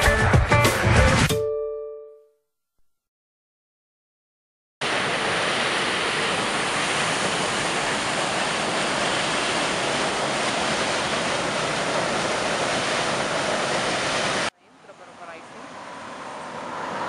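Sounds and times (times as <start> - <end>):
water gushing from pipe into tank: 4.8 - 14.5.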